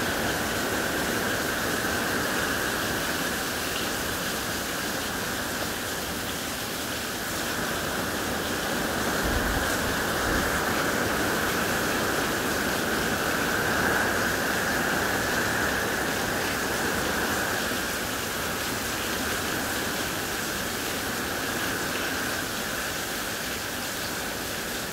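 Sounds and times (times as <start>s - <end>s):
heavy rain hissing: 0.0s - 24.9s.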